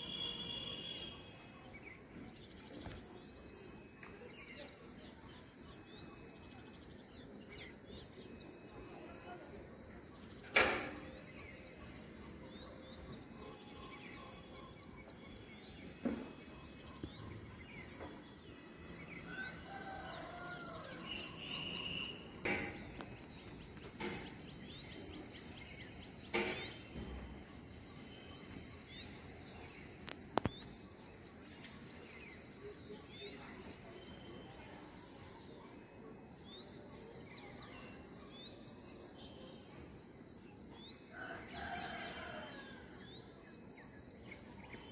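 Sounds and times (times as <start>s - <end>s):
small birds chirping: 0.0s - 35.4s.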